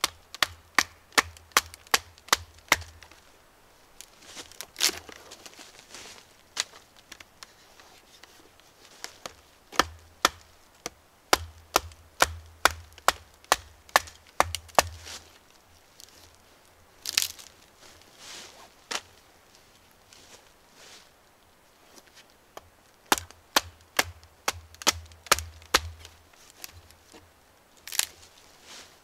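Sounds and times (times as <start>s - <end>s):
sharp wooden knocks: 0.0s - 3.0s, 9.7s - 15.0s, 23.1s - 26.1s.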